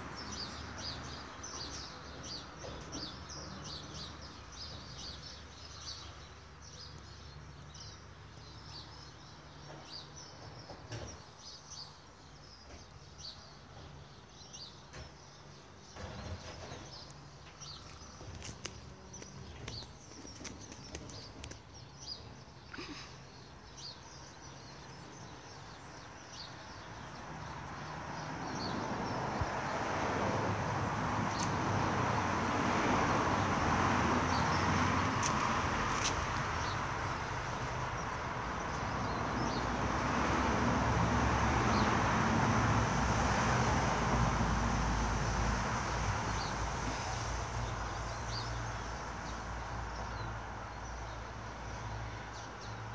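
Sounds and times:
birds chirping: 0:00.0 - 0:42.0.

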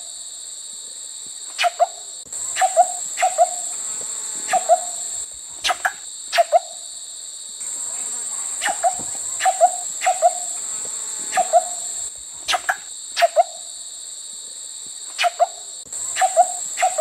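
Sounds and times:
high-pitched insect buzz: 0:00.0 - 0:17.0
short sharp animal calls: 0:01.6 - 0:03.6.

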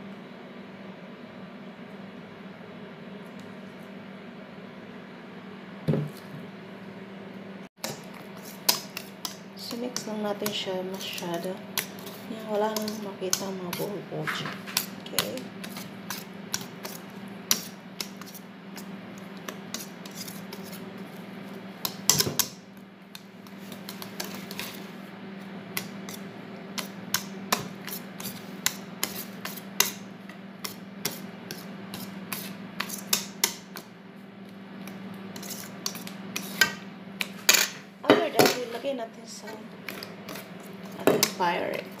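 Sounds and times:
steady low hum: 0:00.0 - 0:42.0
whisk clicking against bowl: 0:07.8 - 0:13.9, 0:14.6 - 0:20.6.

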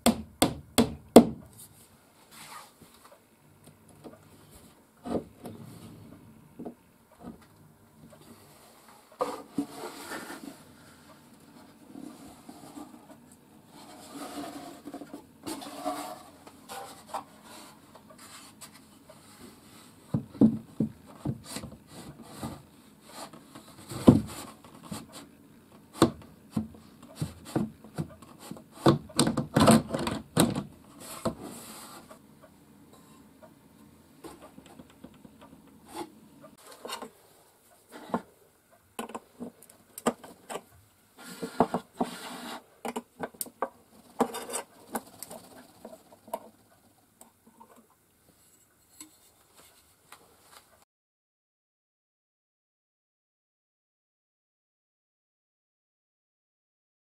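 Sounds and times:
wood and metal knocks and clunks: 0:20.2 - 0:21.4.

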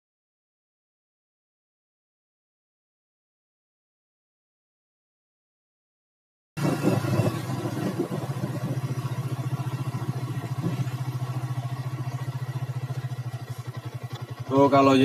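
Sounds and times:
motorcycle engine running: 0:06.6 - 0:15.0.

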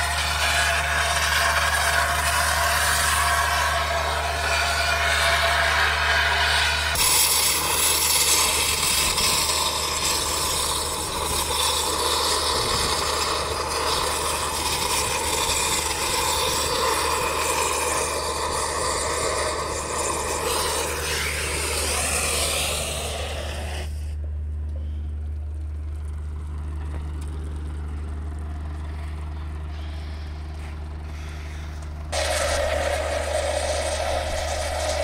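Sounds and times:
oxygen lance hissing: 0:00.0 - 0:24.2, 0:32.2 - 0:35.0
low hum: 0:00.0 - 0:35.0.

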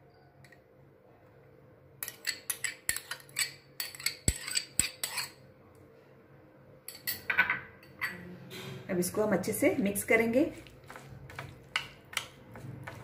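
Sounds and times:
spoons clinking against bowls: 0:02.0 - 0:05.4, 0:06.9 - 0:08.2, 0:10.5 - 0:13.0.

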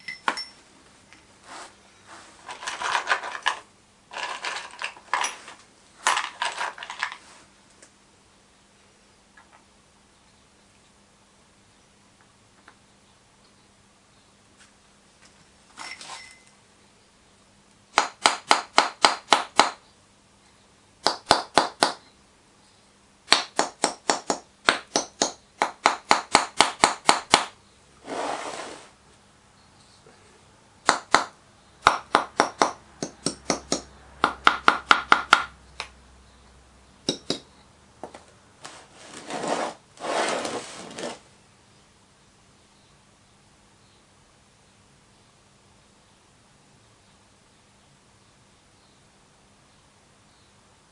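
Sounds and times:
soft rubbing: 0:01.4 - 0:02.6, 0:38.6 - 0:41.3.

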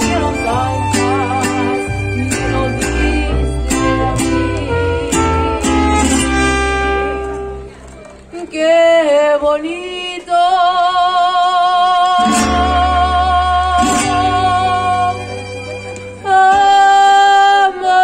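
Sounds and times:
strummed guitar chords: 0:00.0 - 0:07.9, 0:12.2 - 0:16.9
mariachi band playing: 0:00.0 - 0:09.4, 0:11.7 - 0:18.0.

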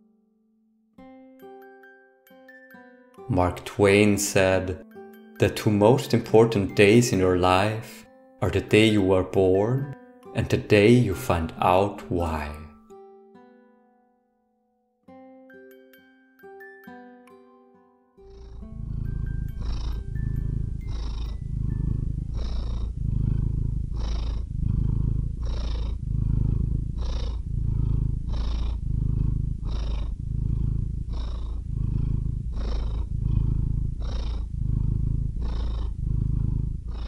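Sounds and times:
cat purring: 0:03.3 - 0:04.8, 0:05.4 - 0:12.8, 0:18.2 - 0:37.0.

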